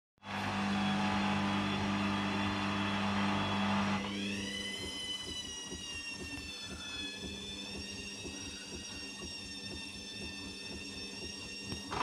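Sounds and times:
washing machine spinning: 0.2 - 12.0
drum coasting with falling whine: 4.2 - 12.0.

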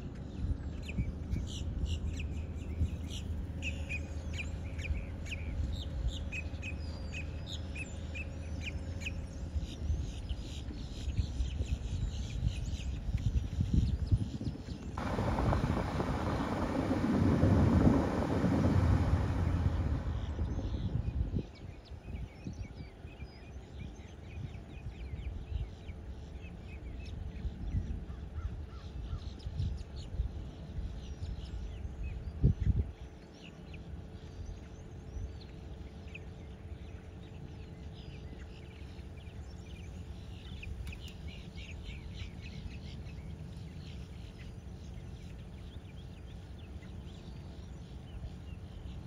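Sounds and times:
wind on microphone: 11.1 - 23.1, 26.8 - 33.0.

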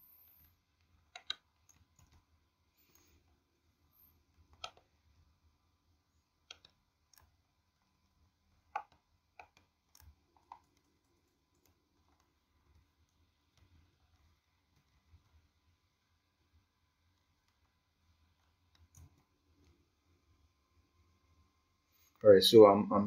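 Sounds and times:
keyboard and mouse clicks: 0.2 - 3.2, 4.3 - 5.0, 6.4 - 15.5, 17.1 - 19.8.

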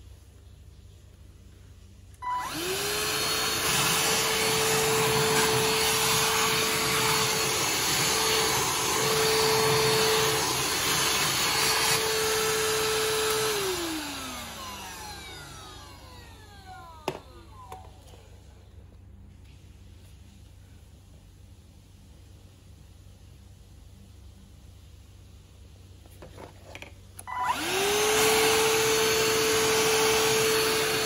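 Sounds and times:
handheld vacuum cleaner running: 2.2 - 18.2, 27.3 - 31.0.

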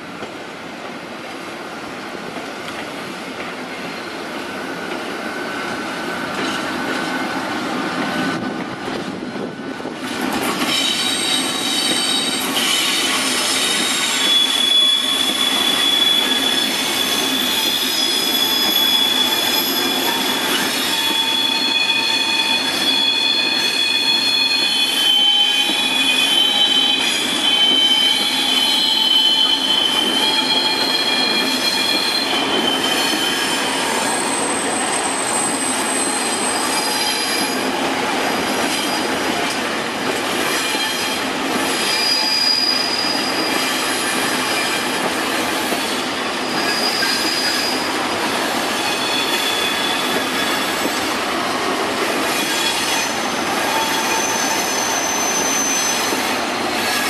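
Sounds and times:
freight train rumbling past: 0.0 - 57.0
wagon wheels squealing: 10.6 - 37.8, 40.6 - 45.0, 45.6 - 51.1, 52.2 - 57.0.

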